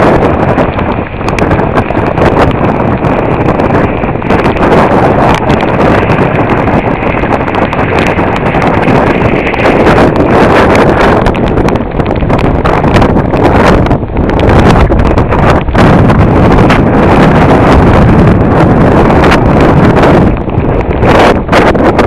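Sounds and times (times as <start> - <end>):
crackling thumps: 0.0 - 22.0
wind buffeting microphone: 0.0 - 22.0.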